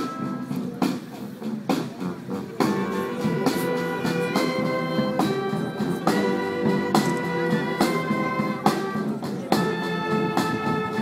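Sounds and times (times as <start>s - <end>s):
brass instruments holding chords: 0.0s - 0.7s, 2.0s - 11.0s.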